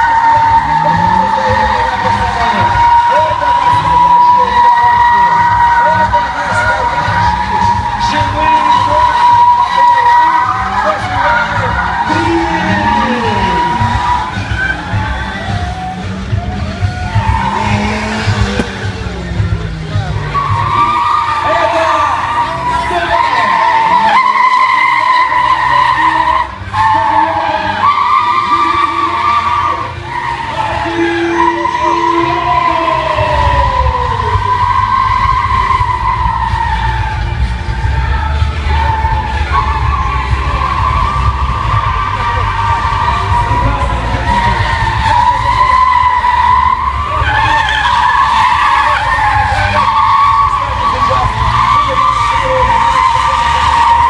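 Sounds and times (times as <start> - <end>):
car engine running: 0.0 - 54.0
tyres squealing: 0.0 - 54.0
low engine drone: 11.6 - 21.3.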